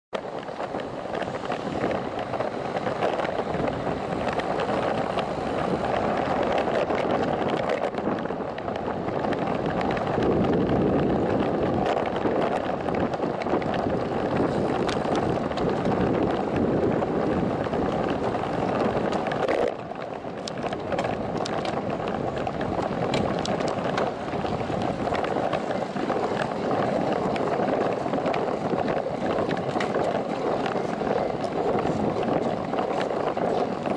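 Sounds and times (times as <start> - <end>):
tyre and road noise: 0.1 - 33.9
bicycle clicks and rattles: 0.2 - 33.9
wind on microphone: 0.2 - 33.9.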